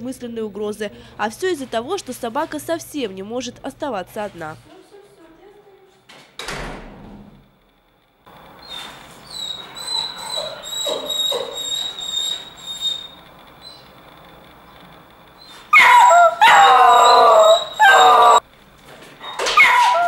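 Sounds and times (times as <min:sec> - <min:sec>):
dog whining: 0:08.6 - 0:14.0, 0:15.4 - 0:18.4, 0:19.2 - 0:20.0
dog howling: 0:09.3 - 0:13.2, 0:15.7 - 0:18.4, 0:19.6 - 0:20.0.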